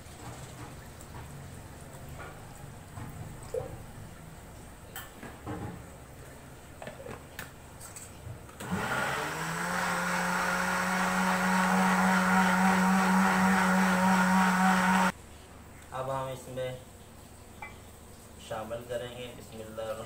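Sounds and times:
electric blender motor running: 8.6 - 15.1.

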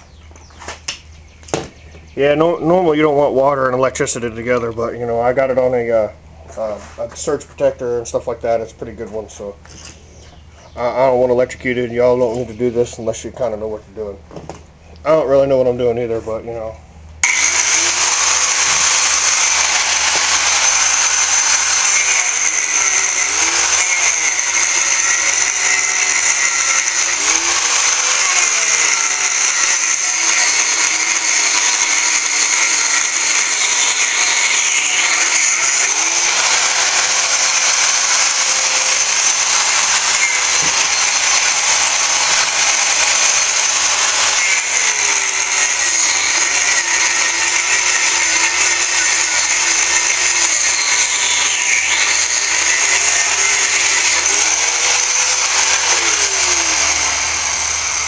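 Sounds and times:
angle grinder cutting metal: 16.3 - 58.0.

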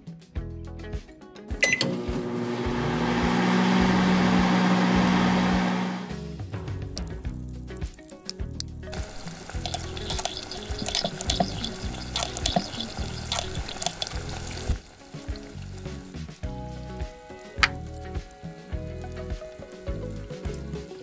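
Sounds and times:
background music: 0.0 - 21.0
butter sizzling and crackling: 6.5 - 21.0
sharp tick: 7.7 - 15.6
metal spoon stirring in pot: 9.0 - 15.5.

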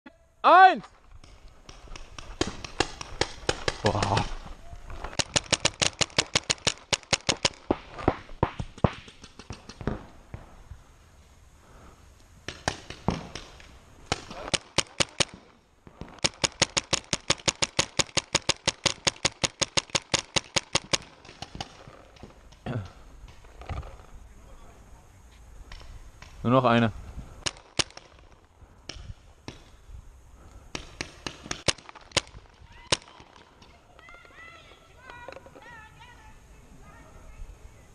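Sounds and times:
paintball markers firing: 1.2 - 10.1, 12.5 - 23.9, 27.4 - 29.8, 30.7 - 34.4.

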